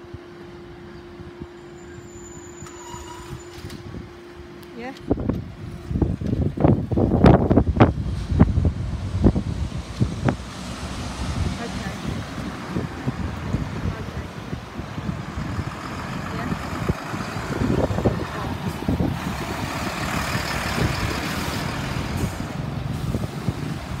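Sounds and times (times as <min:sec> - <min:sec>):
lorry driving past: 0:08.1 - 0:23.9.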